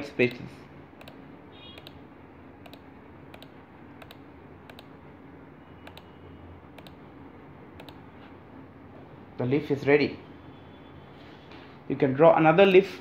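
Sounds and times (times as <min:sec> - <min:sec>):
computer mouse clicking: 0:01.0 - 0:02.0, 0:02.6 - 0:05.0, 0:05.8 - 0:06.1, 0:06.7 - 0:07.0, 0:07.8 - 0:08.0.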